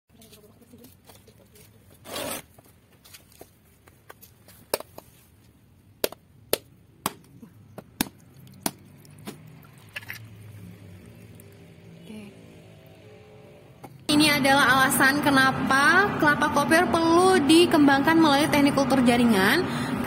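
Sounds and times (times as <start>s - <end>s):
machete striking coconut shell: 6.0s - 7.3s, 8.0s - 9.5s.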